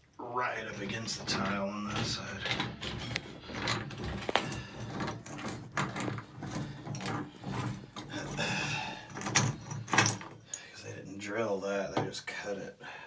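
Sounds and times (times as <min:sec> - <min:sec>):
tools knocking and scraping: 0:00.6 - 0:10.7.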